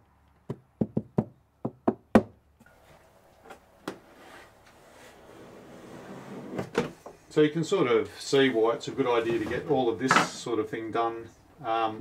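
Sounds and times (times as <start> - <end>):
faint scraping: 8.1 - 9.9.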